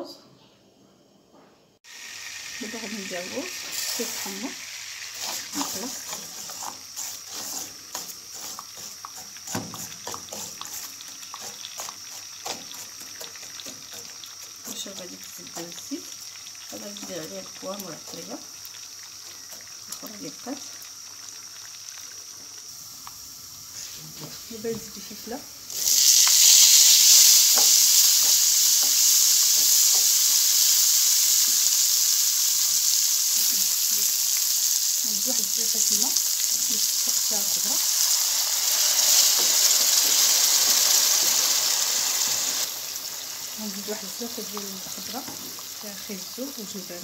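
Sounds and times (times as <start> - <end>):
rice sizzling in frying pan: 1.8 - 47.0
wooden spoon scraping pan: 5.2 - 13.4.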